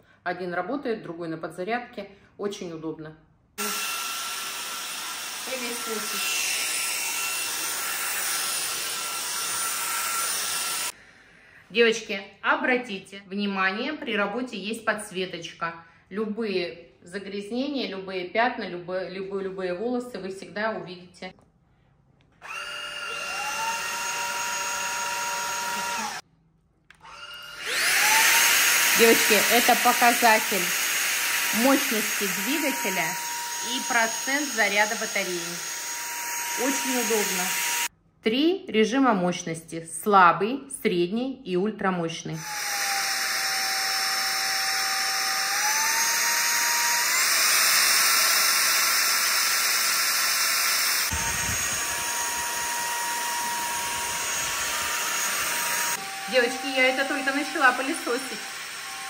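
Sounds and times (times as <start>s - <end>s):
stick vacuum motor whine: 3.6s - 11.0s, 22.4s - 26.2s, 26.9s - 37.9s, 42.4s - 59.0s.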